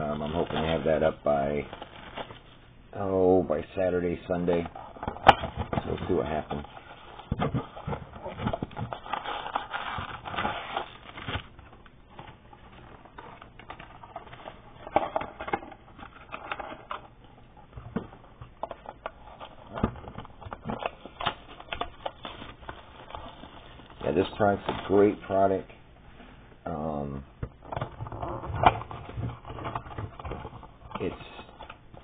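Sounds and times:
cardboard packaging crinkling: 0.0s - 25.7s, 27.6s - 32.0s.

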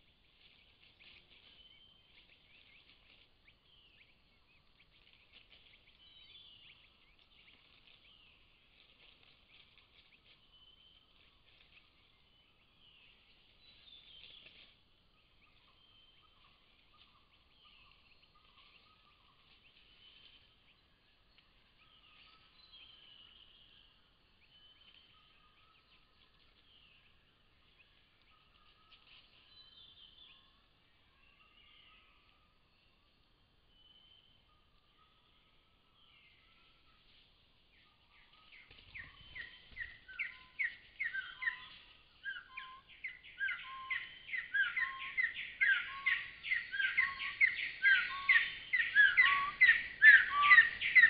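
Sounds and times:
wild birds chirping and trilling: 0.0s - 51.0s
low whistled bird notes: 37.7s - 51.0s.

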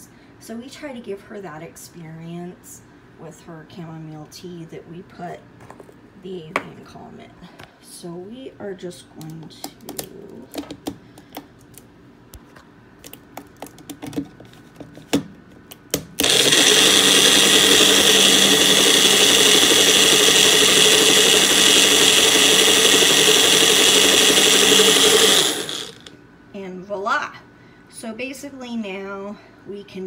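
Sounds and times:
blender motor running: 16.2s - 26.2s.

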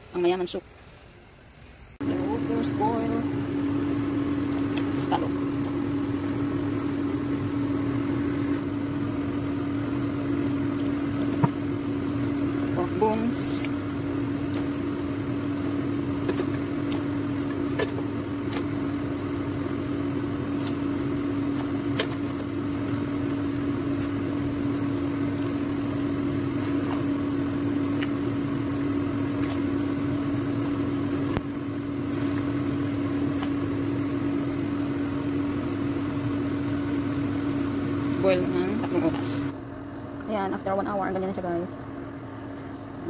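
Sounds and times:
steady machine hum: 0.0s - 43.0s.

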